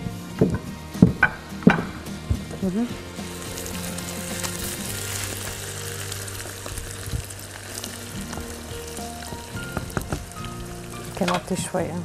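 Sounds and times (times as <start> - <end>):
soft background music: 0.0 - 12.0
food sizzling in a frying pan: 1.4 - 12.0.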